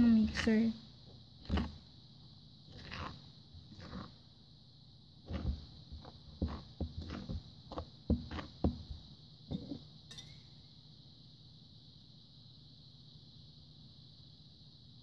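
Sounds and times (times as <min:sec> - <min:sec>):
spoon scraping and knocking bowl: 0:01.4 - 0:01.8, 0:02.7 - 0:04.2, 0:05.3 - 0:10.4.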